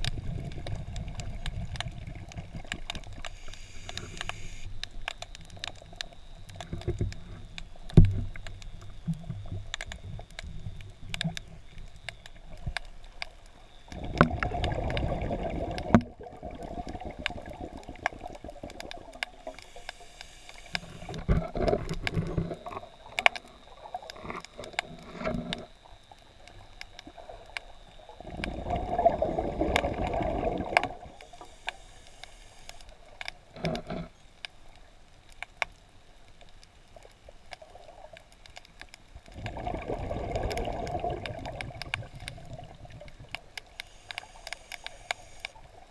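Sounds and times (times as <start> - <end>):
regulator bubbles rumbling: 0.0 - 3.2, 14.0 - 19.5, 28.2 - 31.2, 39.3 - 43.5
sharp underwater clicks: 0.0 - 28.8, 35.3 - 45.6
underwater gurgles: 0.0 - 45.9.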